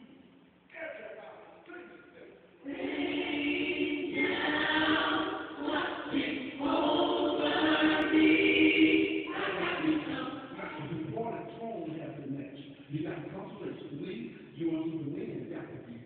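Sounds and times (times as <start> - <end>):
choir singing: 2.6 - 10.9.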